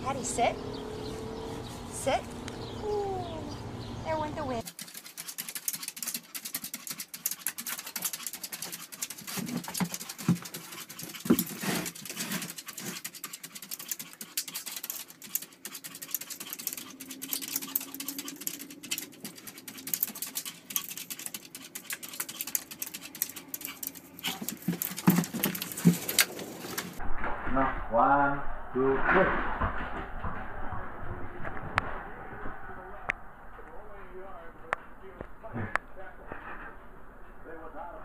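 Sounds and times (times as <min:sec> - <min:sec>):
dog claws scratching at door: 0:04.6 - 0:27.0.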